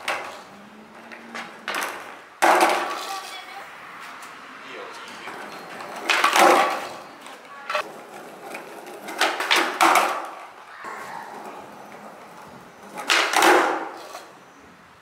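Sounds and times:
skateboard deck clacking: 0.0 - 3.3, 5.3 - 10.6, 11.3 - 14.3
skateboard wheels rolling on concrete: 0.0 - 15.0.

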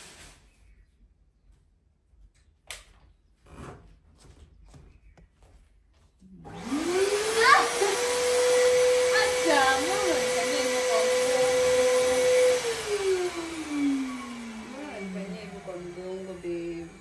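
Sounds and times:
vacuum cleaner motor whine: 6.4 - 17.0.

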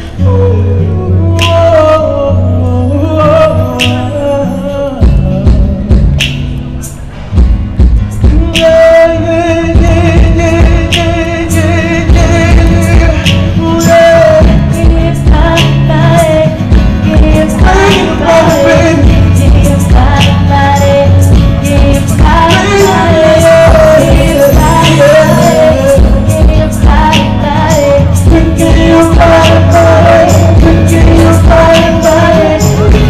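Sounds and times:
acoustic guitar: 0.0 - 33.0
drums: 4.9 - 33.0
woman backing singer: 8.2 - 33.0
man singing long wavering notes: 22.2 - 33.0.

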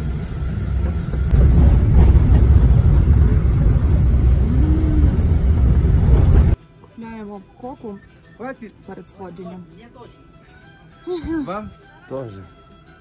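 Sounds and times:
vehicle engine and road rumble: 0.0 - 6.6.

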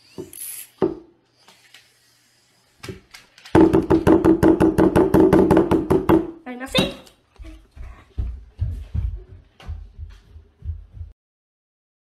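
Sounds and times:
hand pounding tabletop: 3.6 - 7.0.

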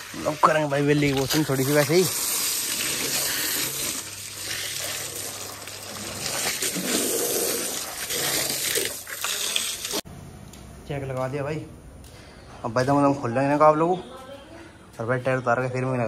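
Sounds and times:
water jet splashing on tyre: 0.0 - 10.0.

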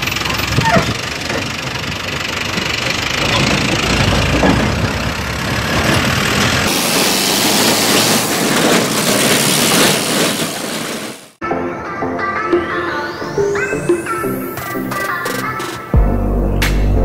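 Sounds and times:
vehicle engine running: 0.0 - 6.8
loud steady rushing noise: 5.6 - 11.4.

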